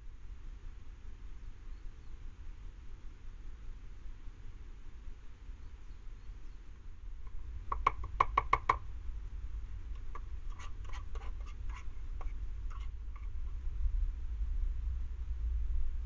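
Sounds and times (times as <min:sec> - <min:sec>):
utensil tapping plastic bowl: 0:07.7 - 0:08.8
scraping and clicking: 0:10.0 - 0:13.4.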